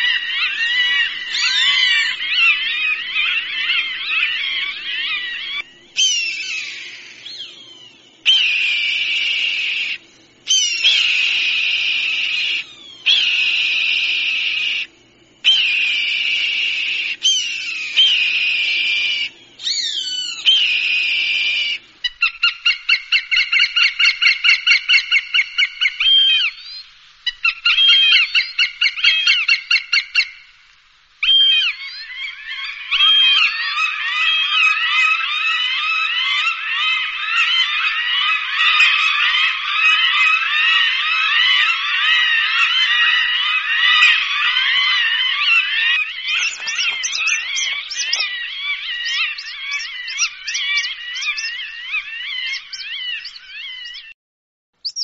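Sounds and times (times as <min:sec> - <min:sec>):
hawk screams: 0:00.0 - 0:07.0, 0:31.2 - 0:54.0
hawk chattering calls: 0:00.0 - 0:07.6, 0:27.3 - 0:30.4, 0:31.2 - 0:54.0.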